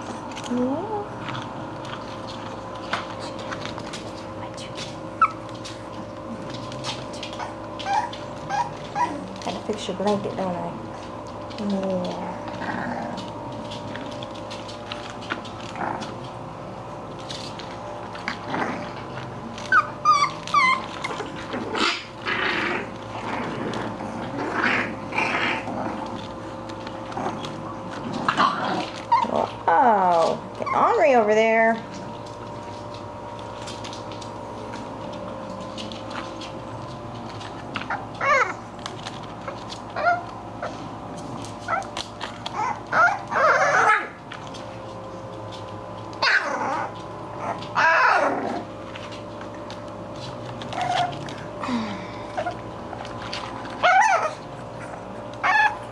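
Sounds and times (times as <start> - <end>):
puppies scuffling: 0.0 - 55.9
puppies whimpering: 5.0 - 9.9, 18.8 - 23.1, 28.8 - 31.3, 35.6 - 40.8, 41.6 - 44.2, 46.2 - 48.6, 50.6 - 55.9.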